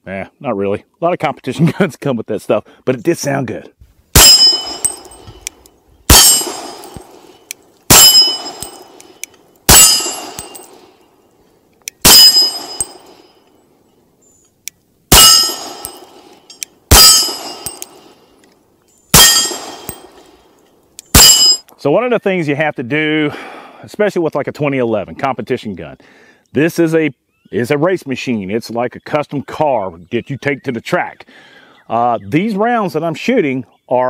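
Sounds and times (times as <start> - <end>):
pistol shots: 4.2 - 5.2, 6.1 - 10.9, 12.0 - 13.2, 15.1 - 18.1, 19.1 - 20.3, 21.1 - 21.6
steel plate target clanging: 4.2 - 5.4, 6.1 - 10.9, 12.0 - 13.4, 15.1 - 18.2, 19.1 - 20.4, 21.1 - 21.7.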